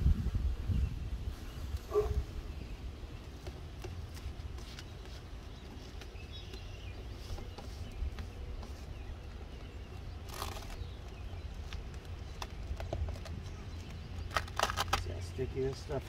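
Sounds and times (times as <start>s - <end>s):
membrane crinkle: 8.8s - 16.0s
membrane rustling and taps: 10.3s - 15.9s.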